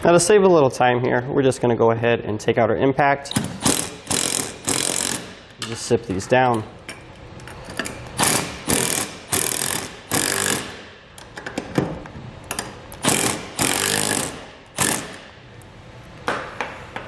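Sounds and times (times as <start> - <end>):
impact driver whine and impacts: 3.3 - 5.6, 8.2 - 10.9, 13.0 - 15.4.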